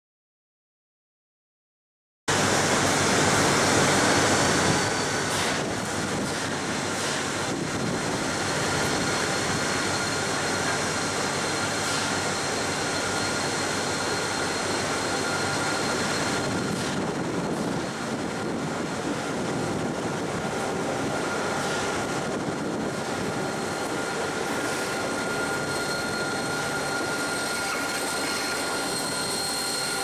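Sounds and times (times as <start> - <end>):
locomotive engine running: 2.3 - 30.0
high whines: 7.4 - 30.0.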